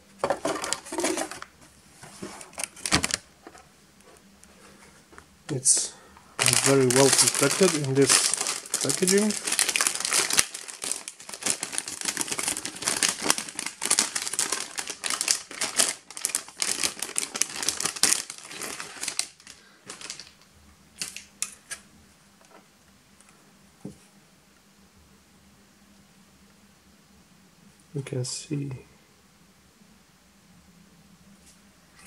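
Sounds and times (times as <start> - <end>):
metallic bag crinkling: 6.4 - 21.5.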